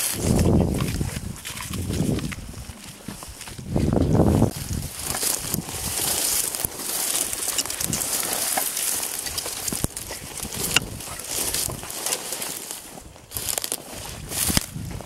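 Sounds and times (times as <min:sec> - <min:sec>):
footsteps through dry grass: 0:00.0 - 0:15.0
twigs snapping: 0:04.5 - 0:14.8.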